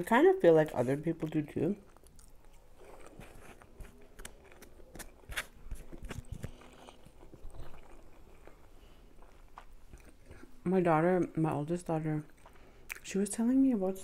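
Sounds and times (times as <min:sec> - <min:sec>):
person chewing food: 0:01.2 - 0:10.6, 0:12.3 - 0:13.0.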